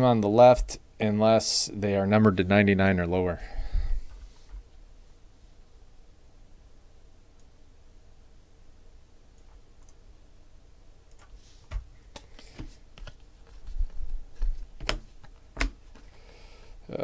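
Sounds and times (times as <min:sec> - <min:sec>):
cards being flipped through: 0:11.2 - 0:16.2.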